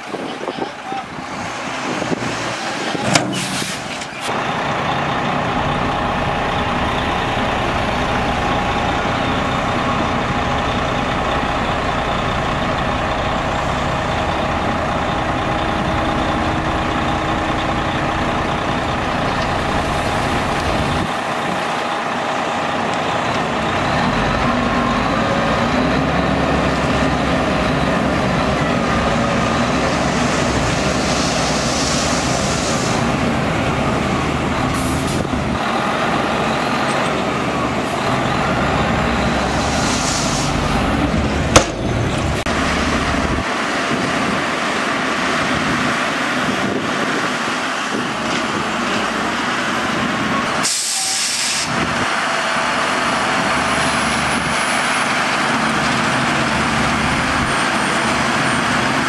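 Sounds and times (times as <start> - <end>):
truck diesel engine running: 0.0 - 59.0.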